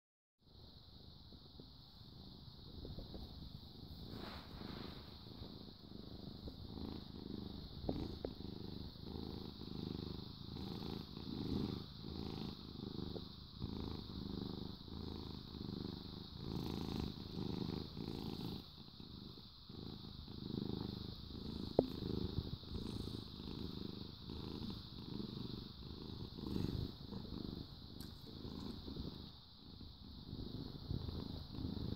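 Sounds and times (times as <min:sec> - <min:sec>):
cat purring: 0:00.5 - 0:31.9.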